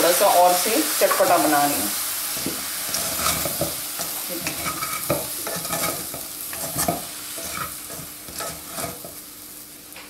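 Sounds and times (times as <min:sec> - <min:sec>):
oil sizzling: 0:00.0 - 0:10.0
spatula scraping pan: 0:02.3 - 0:09.3.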